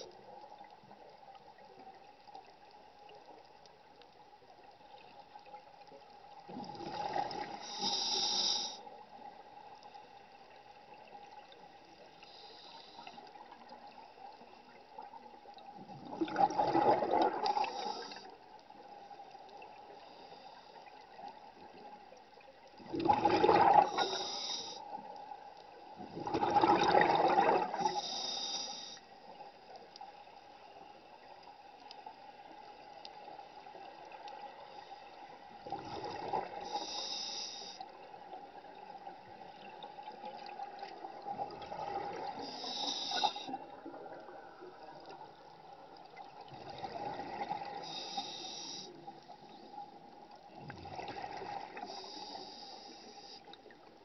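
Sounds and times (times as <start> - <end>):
regulator breath hiss: 7.6 - 8.8, 12.2 - 13.2, 17.6 - 18.3, 23.9 - 24.9, 27.8 - 29.1, 36.6 - 37.8, 42.4 - 43.6, 47.8 - 49.0, 51.8 - 53.6
bubbles gurgling underwater: 15.9 - 17.8, 22.8 - 24.0, 26.0 - 27.8.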